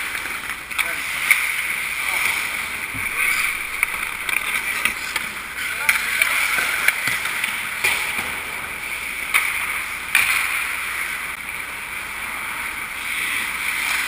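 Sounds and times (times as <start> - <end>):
skate blades scraping ice: 0.0 - 7.7, 12.3 - 14.0.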